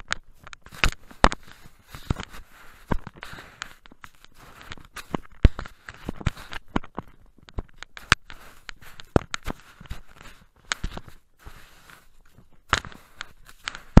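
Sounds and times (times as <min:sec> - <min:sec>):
scraping in snow: 0:11.4 - 0:12.1.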